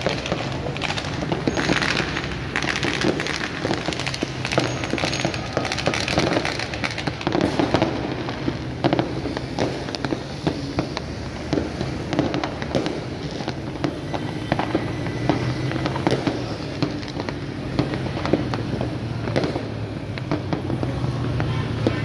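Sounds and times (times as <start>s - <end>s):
distant explosions: 0.0s - 22.0s
fireworks bangs and pops: 0.0s - 22.0s.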